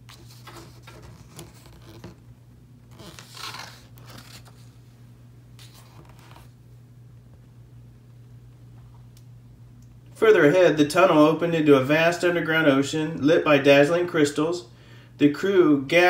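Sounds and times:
paper page rustling: 0.0 - 2.2, 2.8 - 4.8, 5.6 - 6.6
low steady hum: 0.0 - 16.0.

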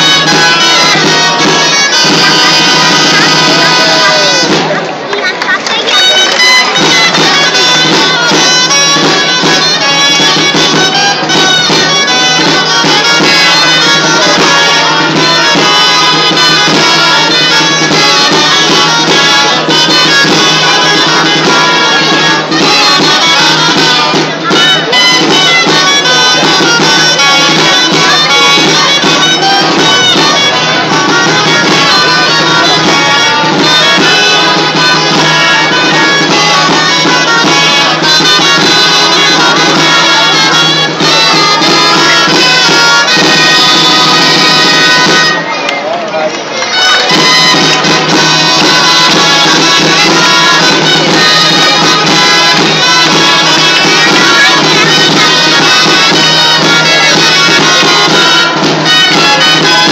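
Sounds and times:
folk dance music on reed pipes: 0.0 - 59.9.

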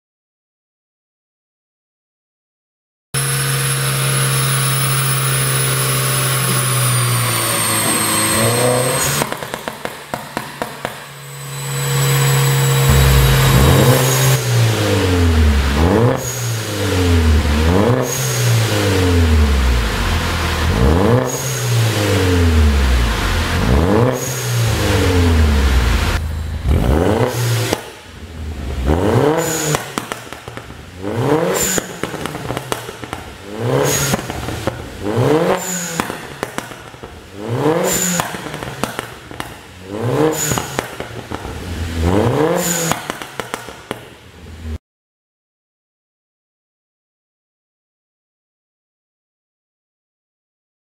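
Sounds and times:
car engine revving: 3.2 - 39.1, 41.6 - 43.5
exhaust pops and crackles: 31.7 - 33.4.

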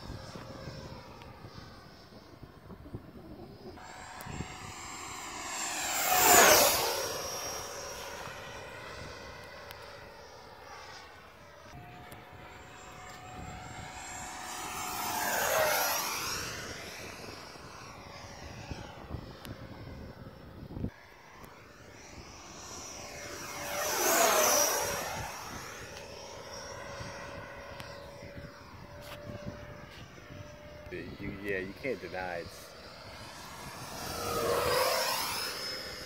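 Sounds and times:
electric ducted fan jet whine: 0.0 - 36.0.

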